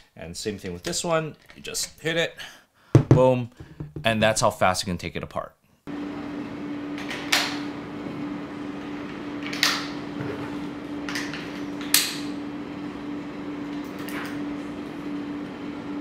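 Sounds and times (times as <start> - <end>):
steady low hum: 5.9 - 16.0.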